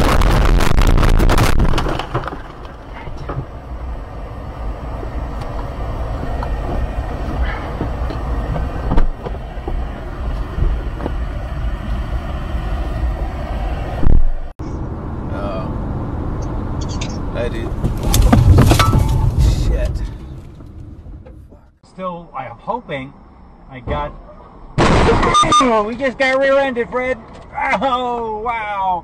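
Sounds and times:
car crashing into bushes: 0:00.0 - 0:02.9, 0:17.8 - 0:20.6, 0:24.8 - 0:25.6
branches scraping car body: 0:00.0 - 0:03.6, 0:17.8 - 0:21.2
low steady rumble: 0:00.0 - 0:25.0
knocks and clicks in car cabin: 0:06.2 - 0:09.8, 0:10.5 - 0:11.2.

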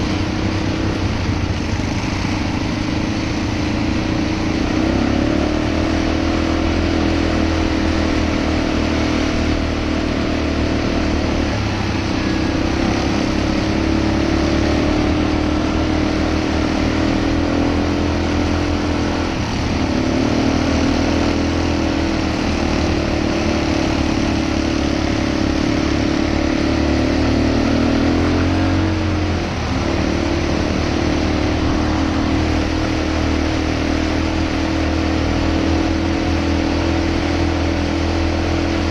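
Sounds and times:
atv engine running: 0:00.0 - 0:38.9
road and wind noise: 0:00.0 - 0:38.9.

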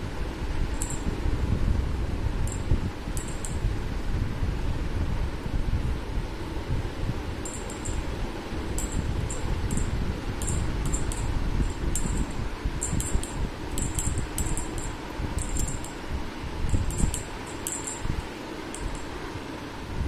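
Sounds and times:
steady low rumble: 0:00.0 - 0:19.3
small jingle bell jingling: 0:00.8 - 0:01.1, 0:02.5 - 0:03.6, 0:07.4 - 0:08.1, 0:08.7 - 0:16.1, 0:16.7 - 0:19.1.

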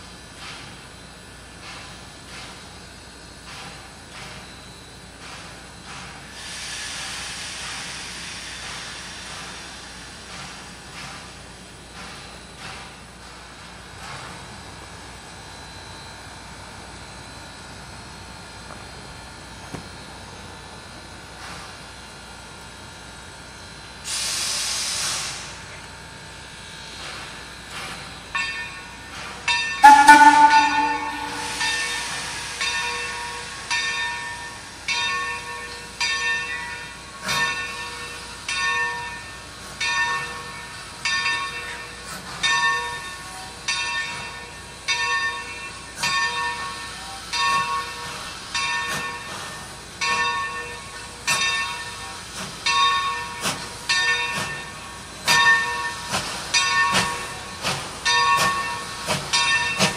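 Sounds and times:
steam hissing: 0:05.2 - 0:13.0, 0:24.0 - 0:25.8, 0:29.1 - 0:34.9, 0:45.7 - 0:50.0, 0:50.8 - 0:59.9
locomotive bell ringing: 0:28.4 - 0:49.4, 0:50.0 - 0:59.9
steam whistle blast: 0:29.8 - 0:32.5.

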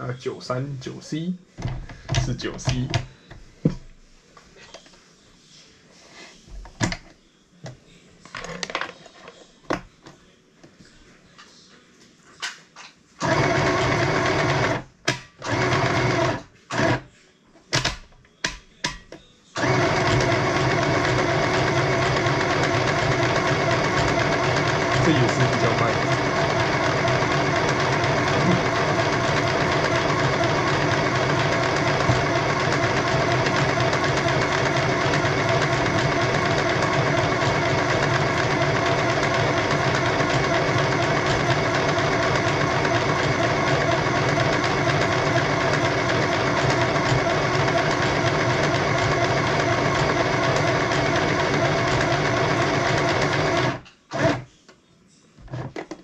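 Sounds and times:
sewing machine stitching: 0:13.2 - 0:17.0, 0:19.6 - 0:54.5.

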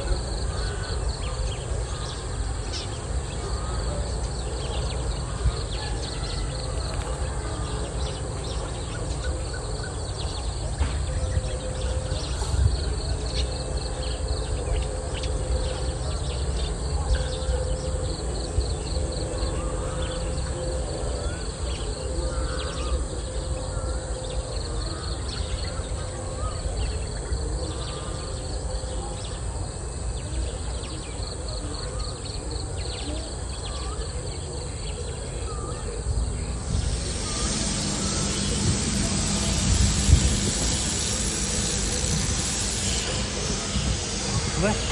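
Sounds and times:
bird chirps: 0:36.4 - 0:44.8
high rapid pulsing call: 0:36.4 - 0:44.9.

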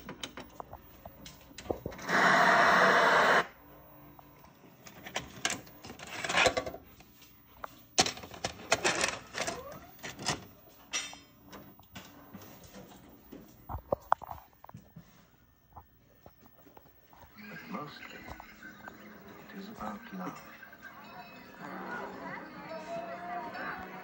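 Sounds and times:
tv static hiss: 0:00.0 - 0:04.9, 0:12.5 - 0:24.0
tape mechanism clicks and whirs: 0:04.4 - 0:06.8.

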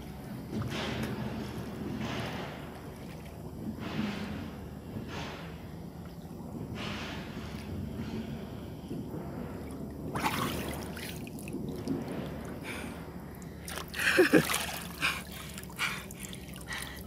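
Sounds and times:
lake water splashing and dripping: 0:09.6 - 0:17.0.

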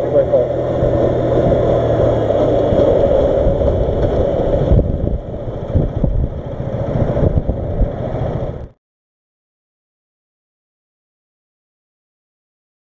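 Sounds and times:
motorcycle engine running: 0:00.0 - 0:08.8
wind rushing on microphone: 0:00.0 - 0:08.8.

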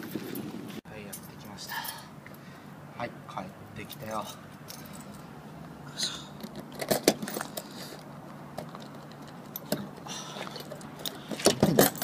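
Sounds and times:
keys jingling: 0:10.6 - 0:12.0.

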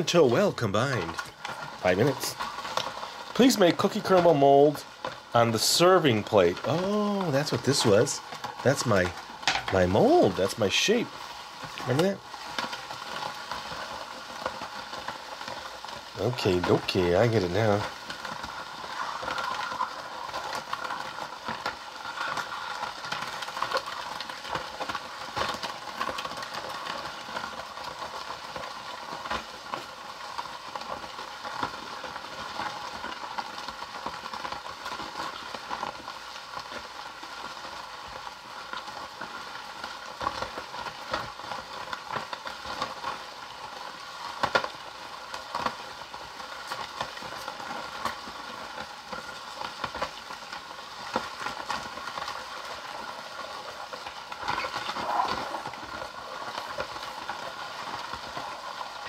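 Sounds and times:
toy ice cream maker churning: 0:00.1 - 0:11.1, 0:11.7 - 0:30.0.

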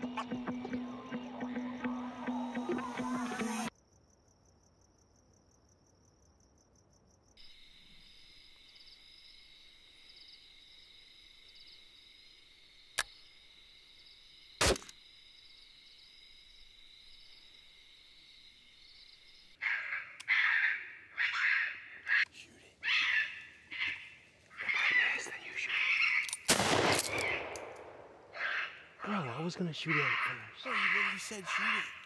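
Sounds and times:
background music: 0:00.0 - 0:03.7
loud gunshot: 0:26.5 - 0:28.0.

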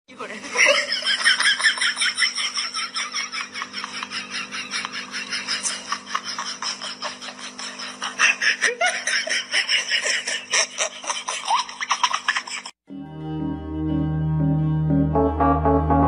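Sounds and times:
people giggling: 0:00.4 - 0:12.8.

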